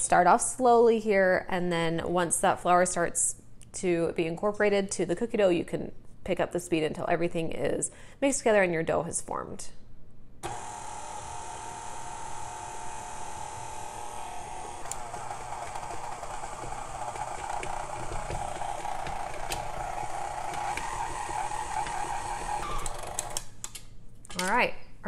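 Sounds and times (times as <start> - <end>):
stand mixer motor whine: 10.4 - 23.4.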